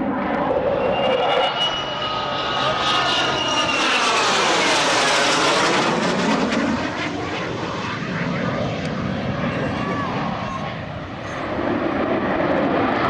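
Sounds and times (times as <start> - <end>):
jet flying past: 0.0 - 13.0.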